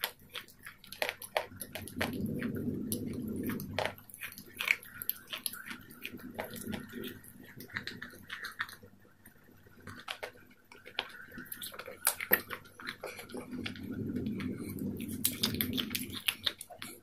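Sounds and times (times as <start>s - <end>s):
wet mouth clicks: 0.0s - 9.0s, 9.8s - 17.0s
crunching salad chewing: 0.0s - 17.0s.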